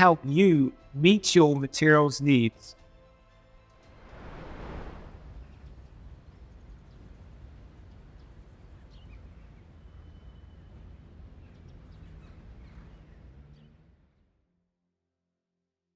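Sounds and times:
low steady rumble: 0:03.8 - 0:14.2
faint bird chirps: 0:05.4 - 0:13.9.

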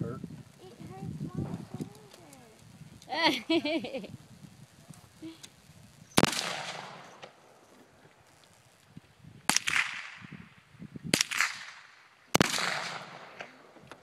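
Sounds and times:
rifle shots with echo: 0:06.2 - 0:07.4, 0:09.5 - 0:10.4, 0:11.1 - 0:13.8.

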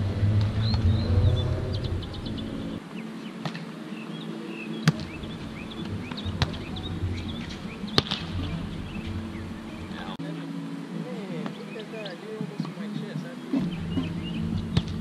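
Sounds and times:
birds chirping: 0:00.0 - 0:15.0
hands slapping volleyball: 0:06.1 - 0:06.7, 0:08.0 - 0:08.4, 0:14.7 - 0:15.0.

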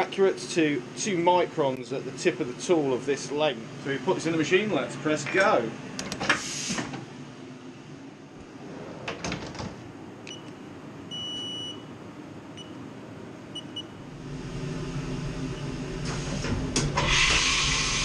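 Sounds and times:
machine humming: 0:09.1 - 0:18.0
control panel beeps: 0:10.3 - 0:11.8, 0:13.6 - 0:13.9.

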